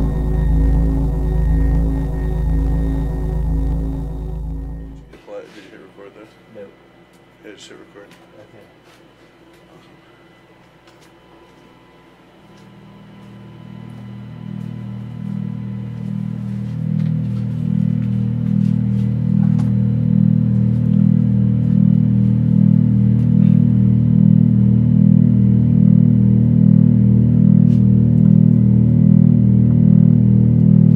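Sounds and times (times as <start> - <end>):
low synthesizer drone: 0.0 - 5.2, 11.8 - 30.9.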